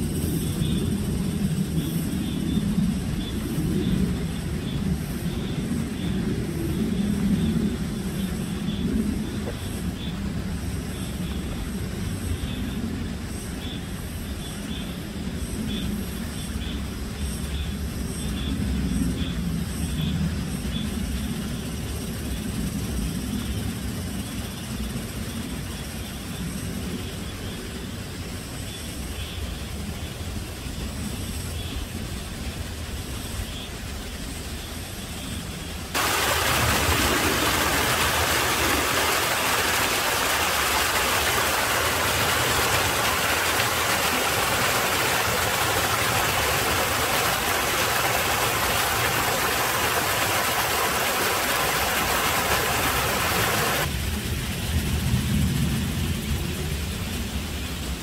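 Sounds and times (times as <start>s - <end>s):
stream rushing over rocks: 36.0s - 53.9s.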